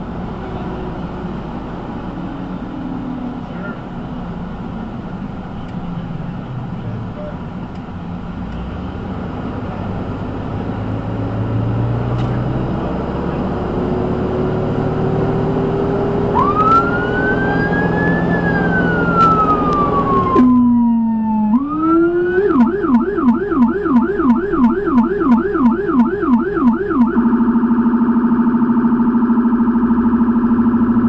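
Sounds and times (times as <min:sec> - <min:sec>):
road and engine noise: 0:00.0 - 0:31.0
electronic siren wailing and yelping: 0:15.0 - 0:31.0.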